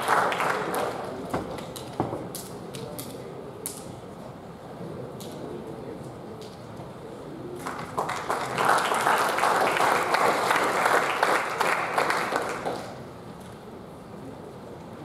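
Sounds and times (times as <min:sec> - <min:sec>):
audience applauding: 0:00.0 - 0:01.3, 0:07.6 - 0:13.0.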